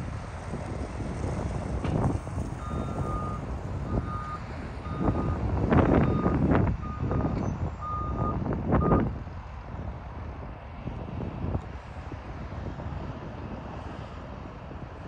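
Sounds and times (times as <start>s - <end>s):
loader engine running: 0.0s - 9.1s
reversing alarm beeping: 2.6s - 5.4s, 6.0s - 9.0s.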